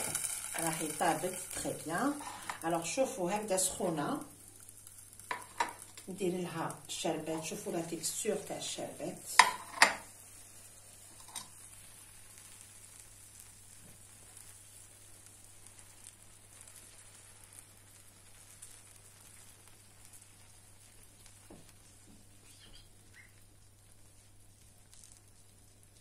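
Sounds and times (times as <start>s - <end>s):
syrup sizzling on hot pastry: 0.0s - 26.0s.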